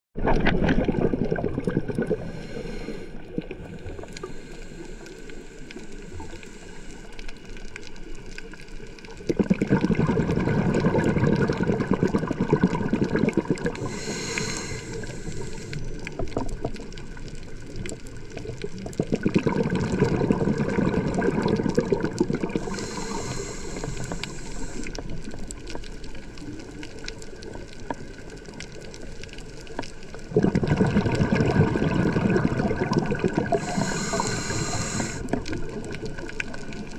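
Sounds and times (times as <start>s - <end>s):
regulator hiss: 2.2s - 3.2s, 3.8s - 7.5s, 13.8s - 16.2s, 22.6s - 25.2s, 33.5s - 35.4s
rumbling bubble surges: 9.3s - 13.8s, 30.3s - 33.6s.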